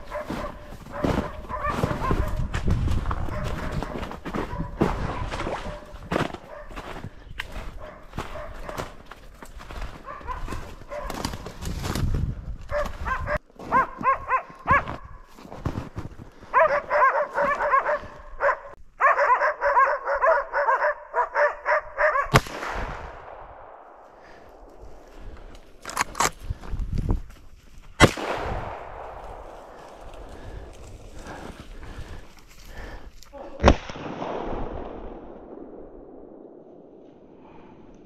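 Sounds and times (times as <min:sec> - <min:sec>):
dogs barking: 0:00.0 - 0:02.5, 0:03.1 - 0:07.0, 0:07.6 - 0:09.1, 0:09.9 - 0:11.3, 0:12.7 - 0:15.2, 0:16.4 - 0:22.4
footsteps crunching through snow: 0:00.0 - 0:18.4, 0:28.9 - 0:33.5
rifle shot: 0:22.3 - 0:24.8, 0:28.0 - 0:30.0, 0:33.6 - 0:37.4.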